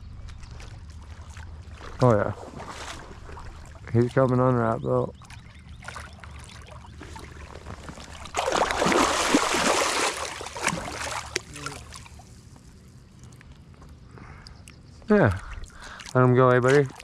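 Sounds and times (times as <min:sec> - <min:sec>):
fish splashing in water: 0:00.4 - 0:03.8, 0:05.1 - 0:12.8, 0:15.4 - 0:17.0.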